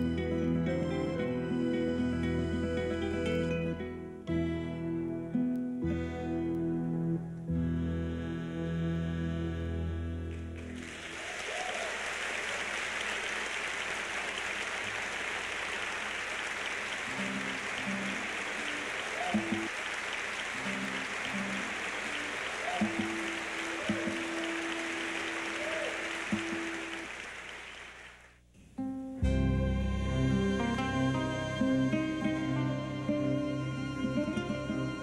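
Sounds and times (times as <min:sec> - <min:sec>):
audience applause: 0:10.4 - 0:28.3
violin and guitar chord: 0:29.2 - 0:35.0.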